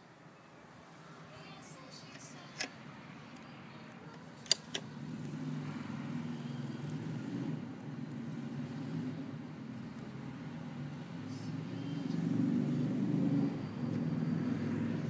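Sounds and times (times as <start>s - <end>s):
engine rumbling: 0.6s - 15.0s
sharp clicks: 4.1s - 4.9s.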